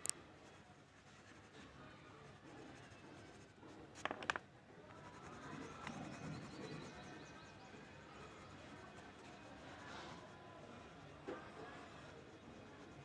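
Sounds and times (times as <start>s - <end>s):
brush strokes on paper: 0.5s - 3.8s, 7.8s - 13.0s.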